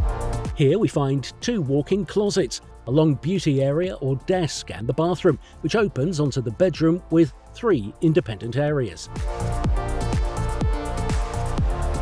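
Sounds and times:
kick-drum beat: 0.0s - 0.6s, 9.2s - 12.0s.

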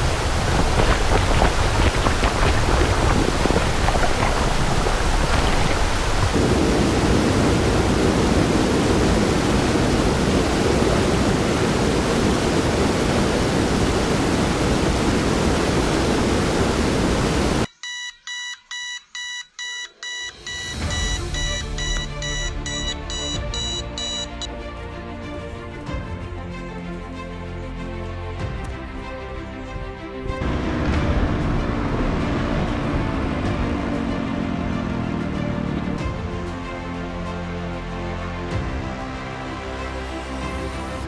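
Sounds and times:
waterfall rushing: 0.0s - 17.7s
beeping alarm tone: 17.7s - 24.5s
music: 20.1s - 41.0s.

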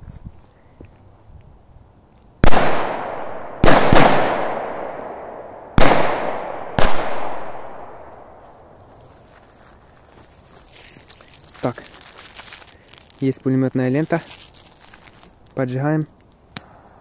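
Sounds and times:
firecracker bangs echoing: 2.4s - 8.1s.

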